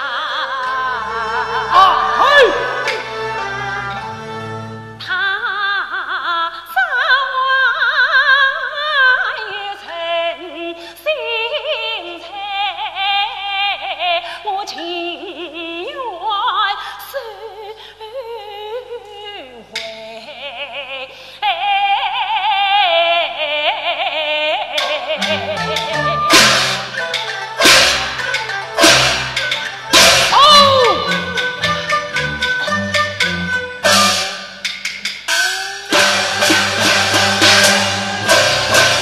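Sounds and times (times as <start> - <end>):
woman singing opera aria: 0.0 - 4.0, 5.0 - 26.5, 30.3 - 31.9
instrumental accompaniment: 0.6 - 5.1, 24.8 - 39.0.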